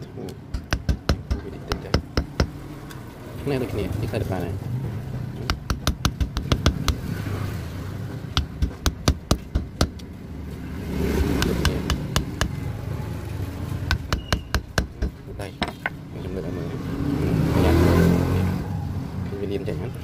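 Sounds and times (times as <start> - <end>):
steel rod tapping metal: 0.5 - 2.6, 11.4 - 12.6, 13.9 - 16.0.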